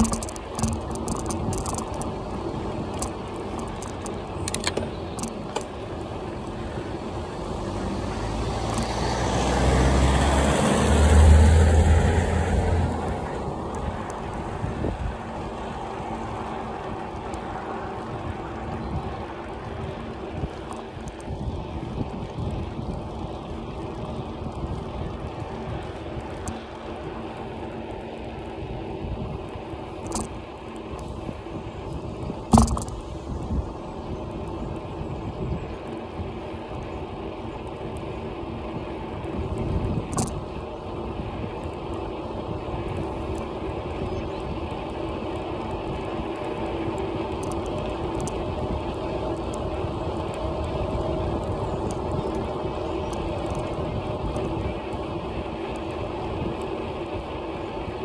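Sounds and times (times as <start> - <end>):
bicycle tyre and road rumble: 0.0 - 58.0
bike knocking over bumps: 32.5 - 33.0.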